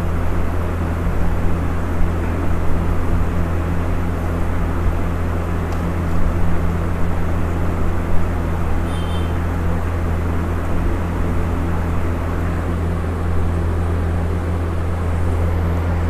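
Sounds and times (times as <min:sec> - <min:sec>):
low mechanical hum: 0:00.0 - 0:16.0
faint high tone: 0:08.9 - 0:09.4.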